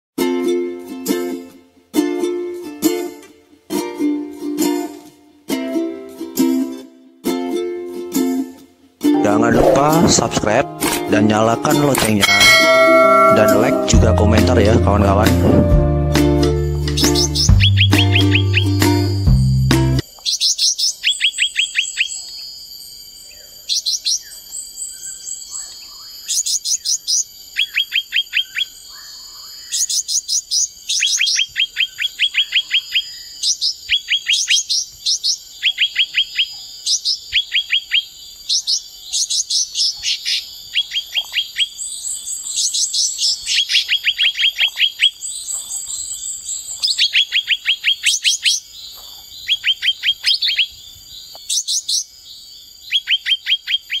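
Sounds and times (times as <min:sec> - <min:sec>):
steady high tone: 0:09.1 - 0:11.4, 0:12.2 - 0:16.9
bird singing chattering trills: 0:11.2 - 0:14.6, 0:17.0 - 0:18.8, 0:20.2 - 0:54.0
thin high whistles: 0:12.2 - 0:14.4.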